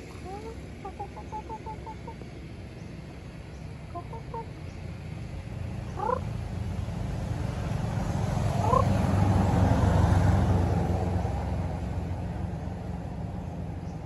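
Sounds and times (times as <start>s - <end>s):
chickens clucking: 0.0s - 2.3s, 6.0s - 6.3s, 8.6s - 8.9s.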